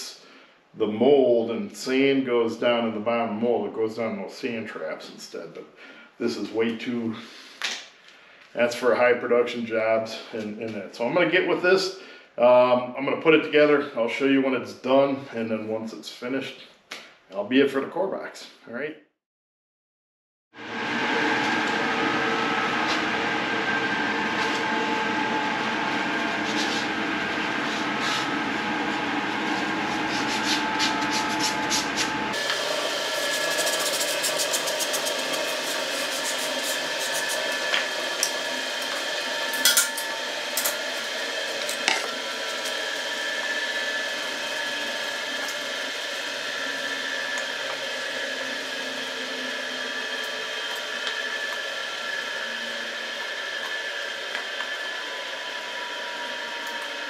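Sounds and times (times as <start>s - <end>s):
machine humming: 20.6s - 57.0s.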